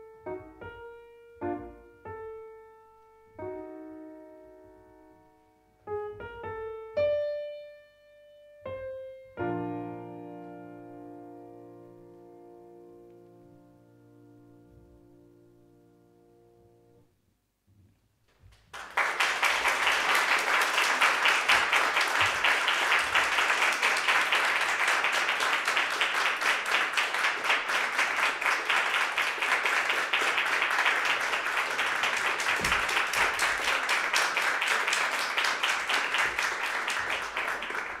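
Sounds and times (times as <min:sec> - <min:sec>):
audience applauding: 0:18.5 - 0:38.0.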